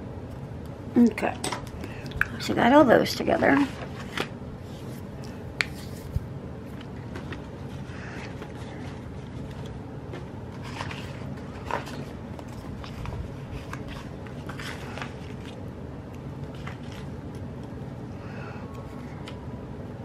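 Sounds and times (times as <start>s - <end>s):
paper sheets rustling and clicking: 3.4s - 15.6s, 16.4s - 17.7s.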